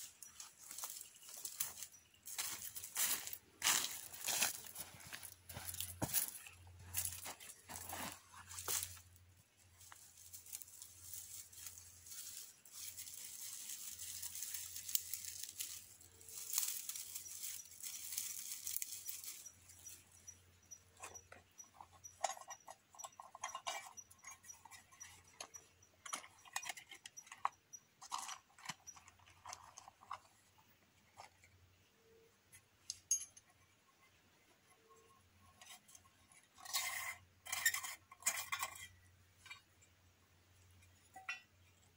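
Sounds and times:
dry twigs rustling and snapping: 7.0 - 9.0, 9.8 - 20.0.

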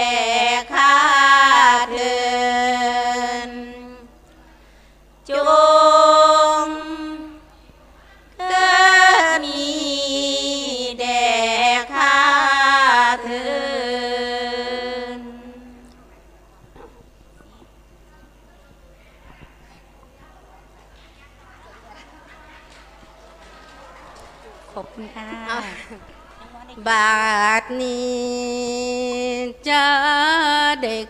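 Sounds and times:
women chanting unaccompanied: 0.0 - 4.1, 5.2 - 7.5, 8.4 - 15.8, 24.5 - 31.0.

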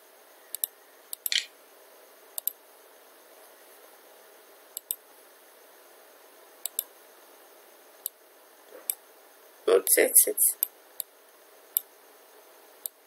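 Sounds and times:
computer mouse clicking: 0.5 - 1.5, 2.4 - 2.6, 4.8 - 5.0, 6.6 - 6.9.

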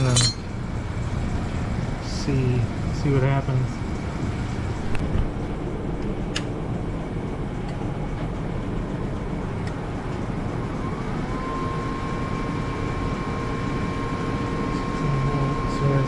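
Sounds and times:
welder steady hum: 0.0 - 16.0.

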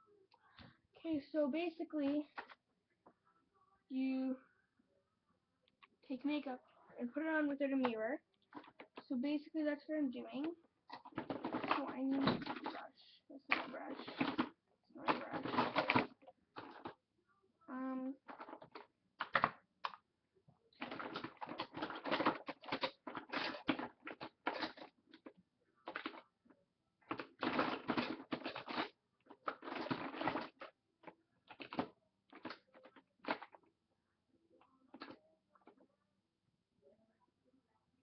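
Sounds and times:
makeup items rattling in plastic tub: 7.6 - 9.2, 10.1 - 17.0, 18.1 - 20.0, 20.8 - 26.3, 27.0 - 33.6, 34.9 - 35.9.

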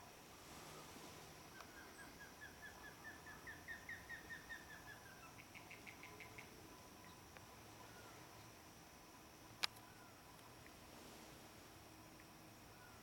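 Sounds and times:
osprey whistling calls: 1.5 - 7.2.

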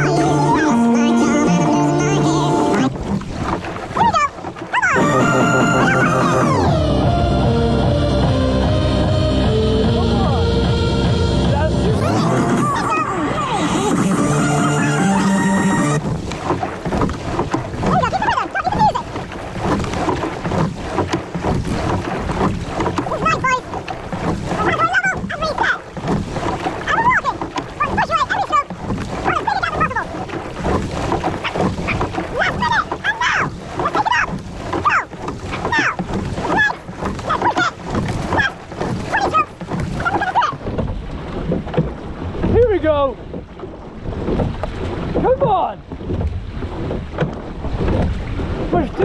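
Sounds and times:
oars squeaking: 0.0 - 7.1, 11.8 - 49.0
water rushing along hull: 0.0 - 49.0
steady low rumble: 6.5 - 12.8.

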